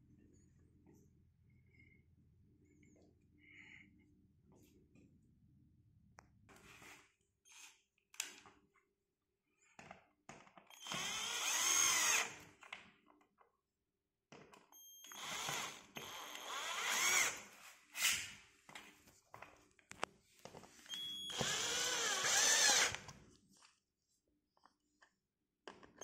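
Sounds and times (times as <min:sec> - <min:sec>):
cordless drill driving bolts: 0:10.8 - 0:12.4, 0:15.1 - 0:17.5, 0:21.2 - 0:23.1.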